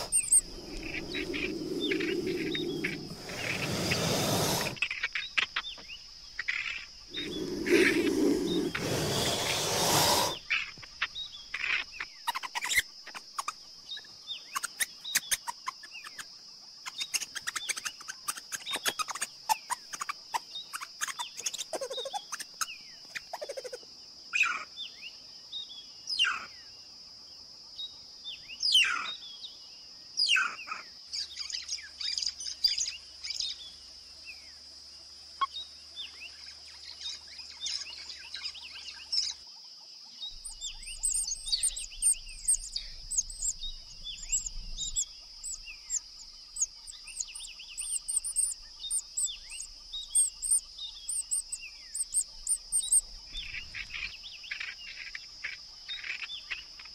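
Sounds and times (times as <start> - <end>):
birds chirping: 0.0 - 23.8, 40.2 - 56.9.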